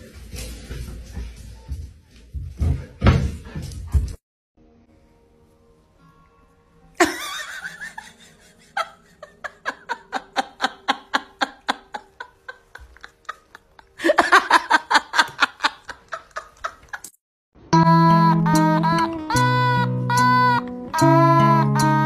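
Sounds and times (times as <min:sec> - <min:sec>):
person laughing: 0:07.0 - 0:17.2.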